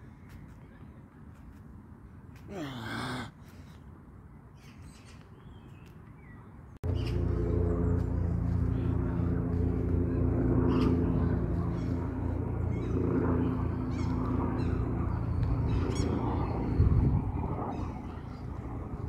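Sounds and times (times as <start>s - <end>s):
low droning hum: 6.8s - 19.0s.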